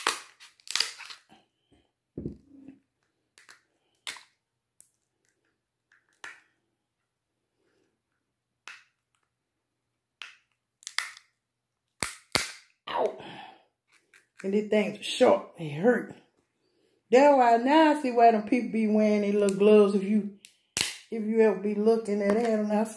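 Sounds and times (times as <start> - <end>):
crab shells cracking: 0.0 - 1.3, 10.2 - 12.8.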